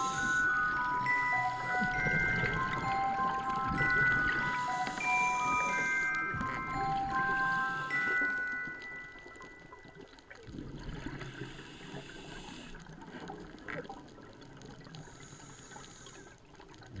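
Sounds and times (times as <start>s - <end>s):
regulator breath hiss: 0.0s - 0.5s, 11.3s - 12.8s
low watery rumble: 0.0s - 7.6s, 16.4s - 17.0s
music chime note: 0.0s - 10.1s.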